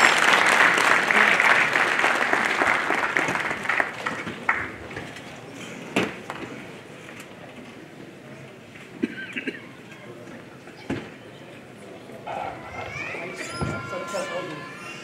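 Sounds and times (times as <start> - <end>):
crowd hand clapping: 0.0 - 5.2.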